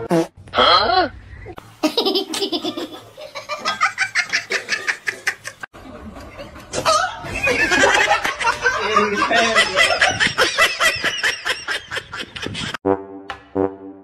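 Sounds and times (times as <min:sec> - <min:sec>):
short brass-like musical notes: 0:12.8 - 0:14.0.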